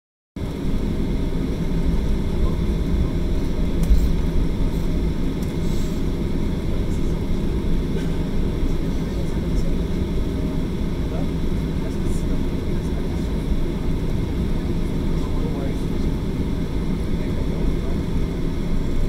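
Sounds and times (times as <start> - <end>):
jet engines low rumble: 0.4 - 19.0.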